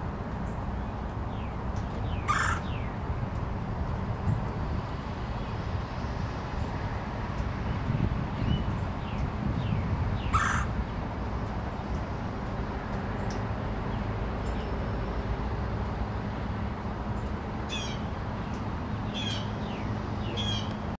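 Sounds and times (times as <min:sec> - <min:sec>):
woodpecker calling: 0:02.1 - 0:02.9, 0:10.2 - 0:10.7, 0:17.7 - 0:18.1, 0:19.1 - 0:20.7.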